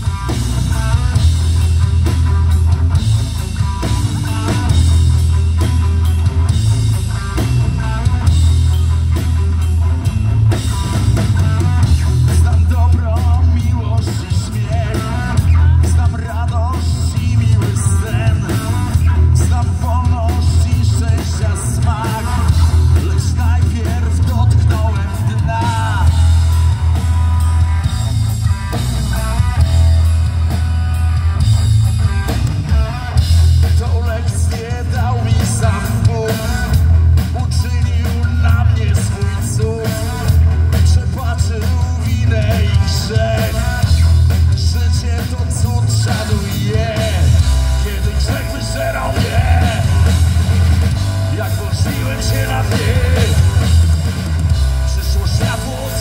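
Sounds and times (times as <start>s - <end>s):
bass guitar: 0.0s - 56.0s
drum kit: 0.0s - 56.0s
guitar: 0.0s - 56.0s
lead vocal singing: 11.2s - 26.8s, 32.6s - 56.0s.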